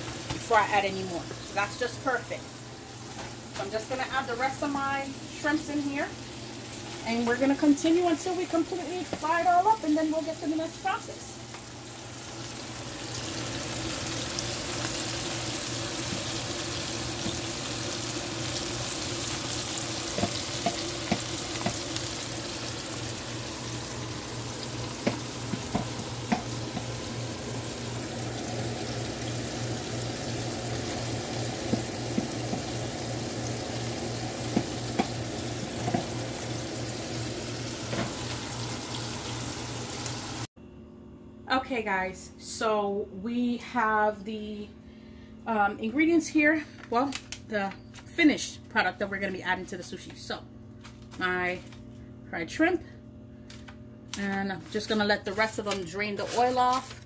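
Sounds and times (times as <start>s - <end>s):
food deep-frying in oil: 0.0s - 40.5s.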